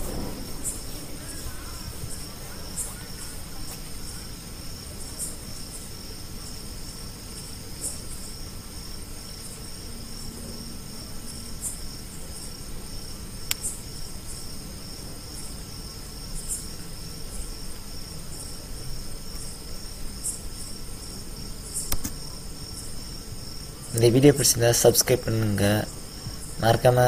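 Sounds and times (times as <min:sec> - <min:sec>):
insects trilling: 0:00.0 - 0:27.0
short insect chirps: 0:00.0 - 0:27.0
sharp click: 0:21.8 - 0:22.2.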